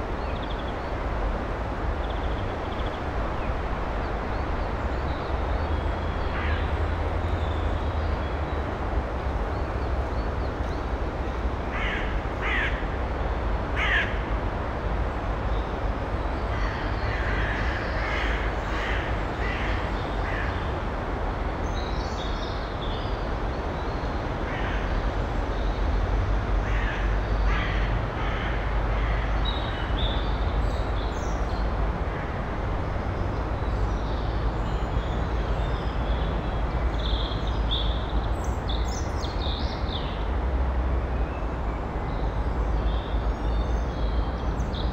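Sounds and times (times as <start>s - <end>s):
harsh crow-like bird calls: 11.7s - 12.9s, 13.8s - 14.3s, 16.5s - 20.7s, 26.6s - 29.9s.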